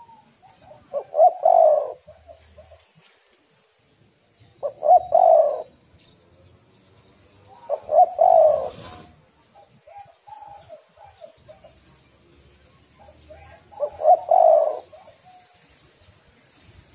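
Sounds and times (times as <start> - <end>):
dove cooing: 0.0 - 3.1, 4.6 - 5.8, 7.5 - 12.0, 12.9 - 15.6.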